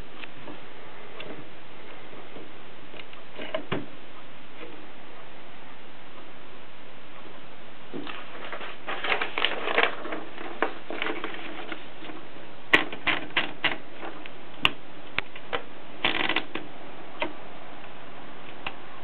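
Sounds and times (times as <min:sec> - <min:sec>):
typewriter mechanical clicks and rattles: 0:16.0 - 0:16.7.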